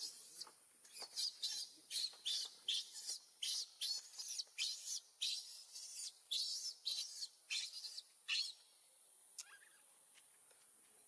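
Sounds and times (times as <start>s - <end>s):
high-pitched animal chirping: 1.0s - 8.6s.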